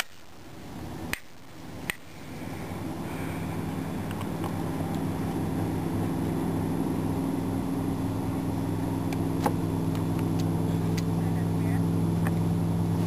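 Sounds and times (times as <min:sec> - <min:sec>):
engine running: 0:00.0 - 0:13.0.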